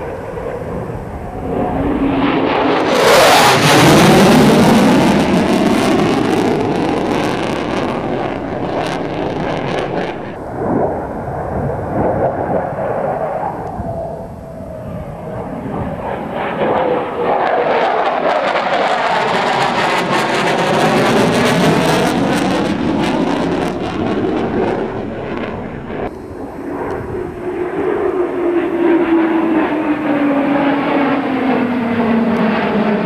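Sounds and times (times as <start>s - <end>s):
fighter jet passing: 0.0s - 33.0s
low rumble: 3.6s - 16.2s, 21.3s - 27.6s.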